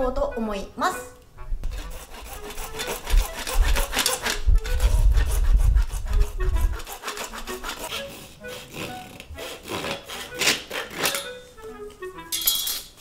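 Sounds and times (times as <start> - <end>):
background music: 0.0 - 13.0
hand tool rasping strokes: 1.6 - 11.4.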